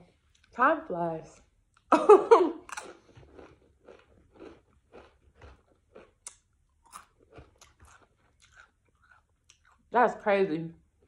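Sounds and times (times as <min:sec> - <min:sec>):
crunchy chewing of chips: 0:02.6 - 0:09.9.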